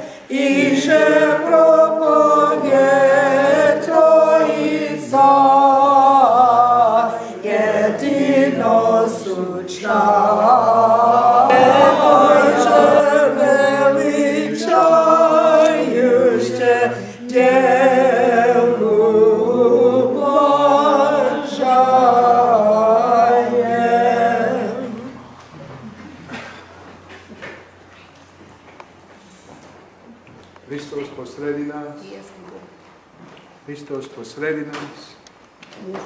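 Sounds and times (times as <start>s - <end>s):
congregation singing a hymn: 0.0s - 25.4s.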